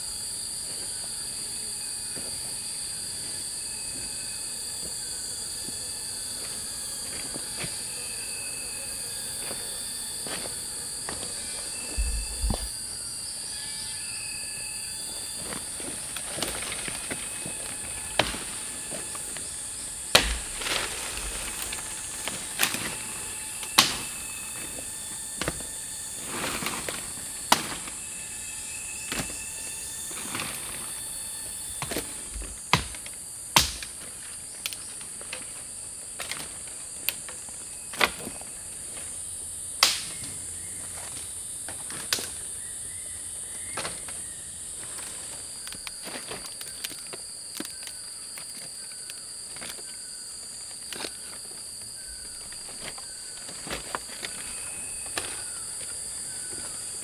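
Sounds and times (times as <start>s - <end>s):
high-pitched insect chorus: 0.0s - 57.0s
lower insect tone: 0.0s - 57.0s
sharp knocks: 20.1s - 20.9s.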